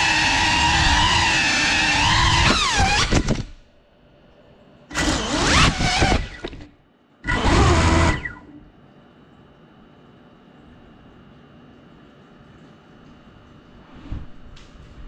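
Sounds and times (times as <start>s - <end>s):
drone motors whining: 0.0s - 3.5s, 4.9s - 8.7s.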